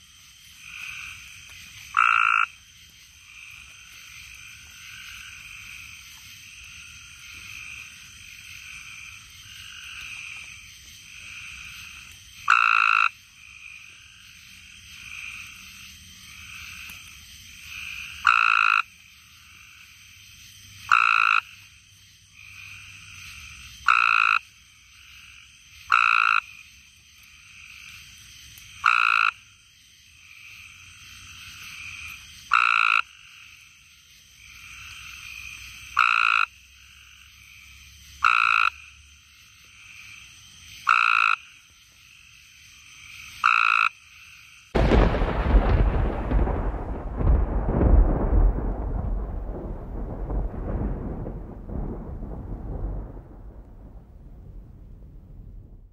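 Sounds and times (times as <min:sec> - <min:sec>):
chorus of treefrogs: 0:00.0 - 0:54.7
treefrog trilling: 0:00.6 - 0:06.0, 0:06.6 - 0:14.4, 0:16.3 - 0:19.9, 0:20.8 - 0:21.7, 0:22.3 - 0:26.7, 0:28.7 - 0:29.5, 0:30.2 - 0:33.8, 0:34.4 - 0:44.6.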